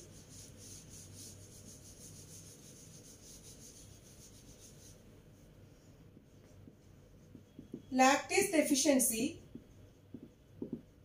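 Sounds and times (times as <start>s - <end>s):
eraser rubbing on whiteboard: 0.0s - 5.5s.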